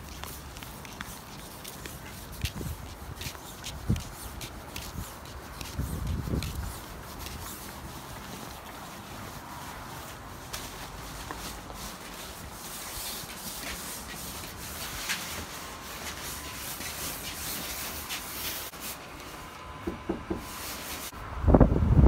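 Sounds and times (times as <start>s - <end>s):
nylon costume rustling: 0.0s - 19.4s
muffled knocks on a door: 19.8s - 20.4s.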